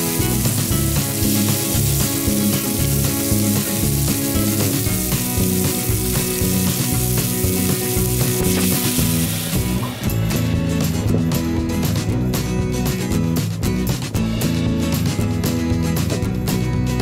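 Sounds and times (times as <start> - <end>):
steaks sizzling on grill: 0.0 - 10.2
background music: 0.0 - 17.0.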